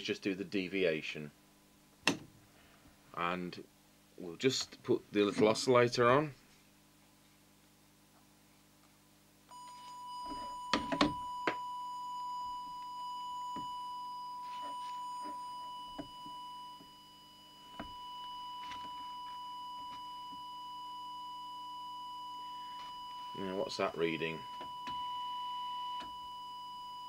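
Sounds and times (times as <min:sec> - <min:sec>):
steady high-pitched test tone: 0:09.5 - 0:27.0.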